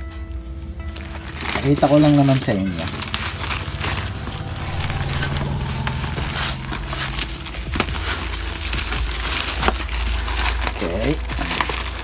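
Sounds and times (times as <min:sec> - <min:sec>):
plastic bag crinkling: 0:01.0 - 0:12.0
low hum: 0:02.9 - 0:10.6.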